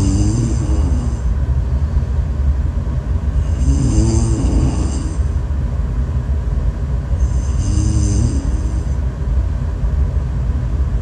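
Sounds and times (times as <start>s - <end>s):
woman snoring: 0.0s - 1.3s, 3.3s - 5.4s, 7.2s - 9.0s.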